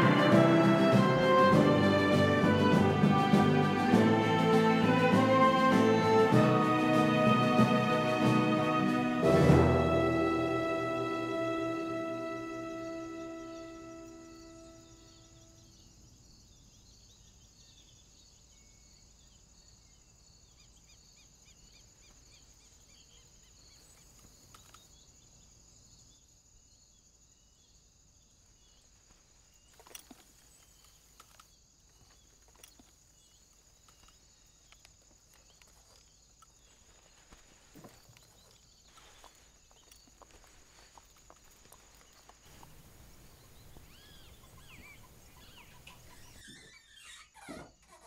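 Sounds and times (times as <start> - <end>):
soft music: 0.0 - 15.6, 42.5 - 46.3
crickets chirping: 0.0 - 48.0
insects chirring: 3.8 - 48.0
horse hooves and tack knocking: 29.7 - 46.6.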